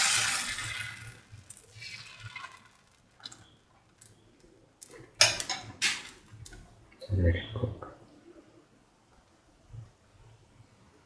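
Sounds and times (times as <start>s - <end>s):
batter sizzling on a hot pan: 0.0s - 3.2s.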